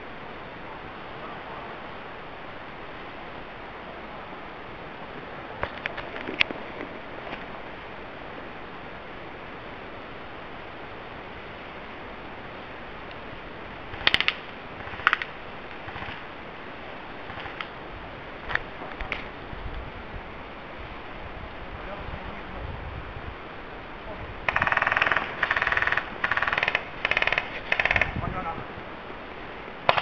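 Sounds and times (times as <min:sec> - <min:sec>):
steady background hiss: 0:00.0 - 0:30.0
airsoft guns firing: 0:13.9 - 0:16.3.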